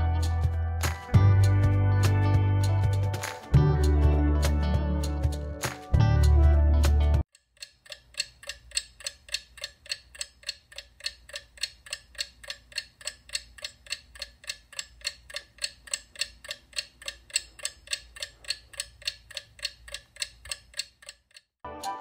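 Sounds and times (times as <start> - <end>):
clock ticking: 7.3 - 21.6.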